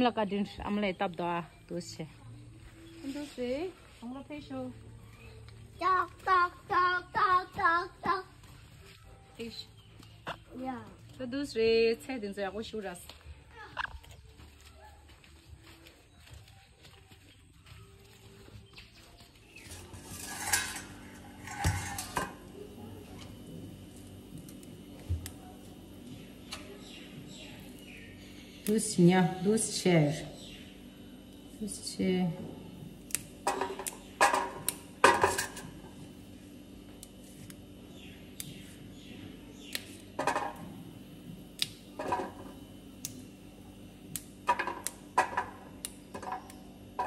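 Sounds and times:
steady low hum: 0.0s - 47.0s
pots and dishes clattering: 19.7s - 22.4s, 33.5s - 35.6s.

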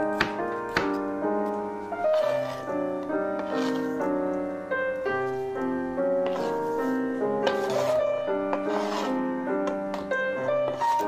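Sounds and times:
gentle piano music: 0.0s - 11.0s
knife chopping on cutting board: 0.1s - 1.0s.

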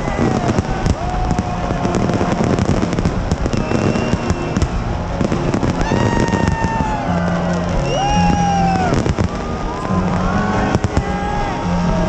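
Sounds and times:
fireworks cracks and bangs: 0.0s - 12.0s
whistling tone dropping in pitch: 3.4s - 4.8s, 5.8s - 11.9s.

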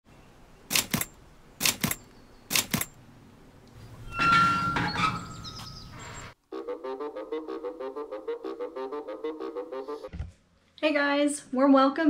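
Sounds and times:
iron gate creaking open: 3.8s - 6.4s.

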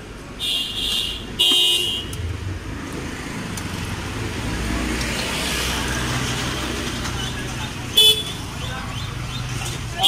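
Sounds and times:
street traffic rumble: 0.0s - 10.0s
vehicle horn blasts: 0.4s - 2.2s, 8.0s - 8.4s.

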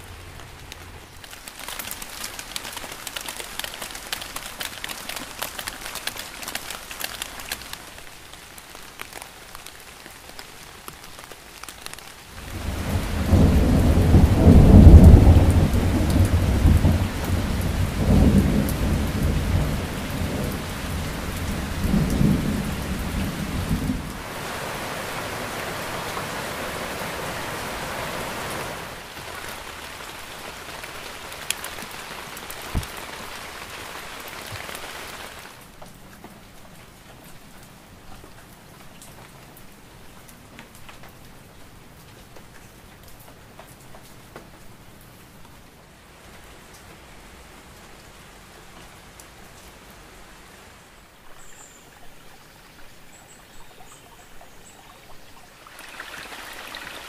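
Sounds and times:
rain falling on leaves: 0.0s - 57.0s
thunder rolling: 12.4s - 24.2s.

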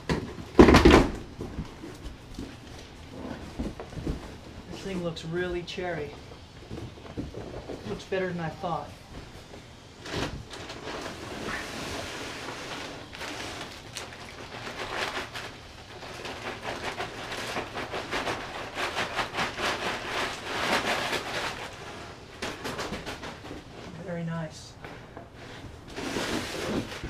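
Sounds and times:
cardboard scraping: 8.8s - 24.0s, 24.9s - 27.0s
packing paper crinkling: 10.0s - 23.8s.

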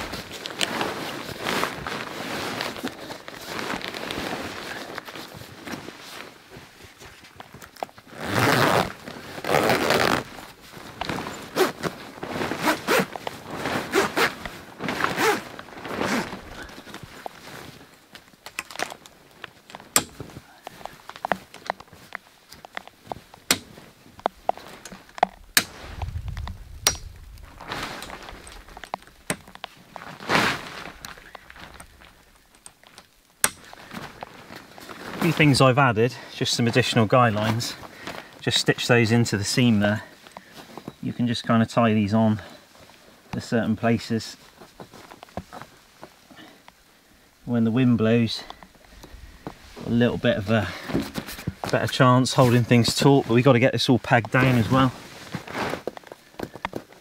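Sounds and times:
rustling crunch: 0.0s - 57.0s
zipper on canvas being pulled: 8.1s - 16.8s, 30.0s - 31.1s.

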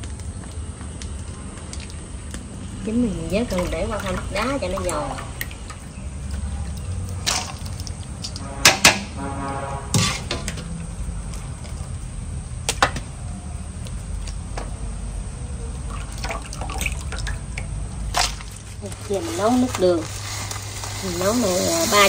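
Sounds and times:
water splashing and dripping: 0.0s - 22.0s
ice rattling: 15.9s - 22.0s.

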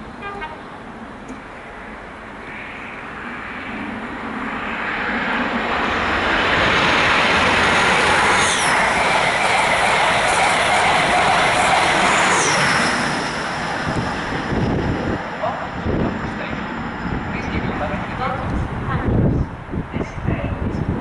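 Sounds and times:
diesel train passing: 0.0s - 20.0s
high squeal: 5.9s - 14.9s.

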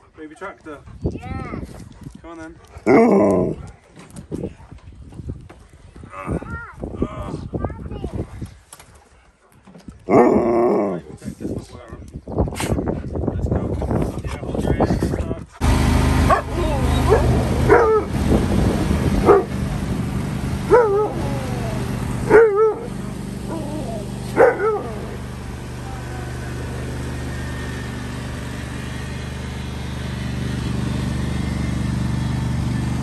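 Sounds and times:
lawn mower engine running: 15.6s - 33.0s
dog barking: 16.3s - 18.1s, 19.2s - 19.5s, 20.7s - 21.2s, 22.3s - 23.0s, 24.4s - 25.0s.

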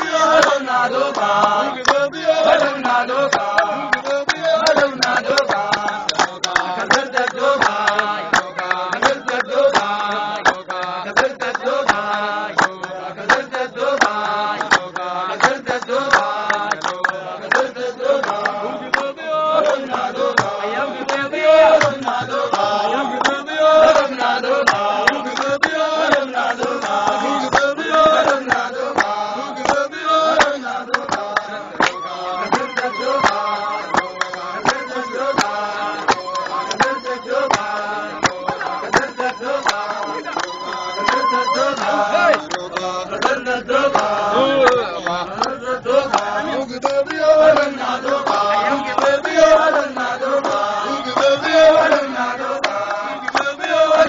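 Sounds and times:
hand claps: 0.0s - 54.0s
men singing together: 0.0s - 54.0s.

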